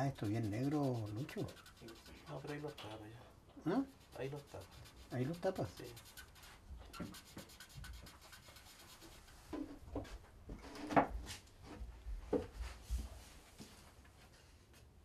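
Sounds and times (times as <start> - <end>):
paper rubbing and rustling: 0.0 - 3.0.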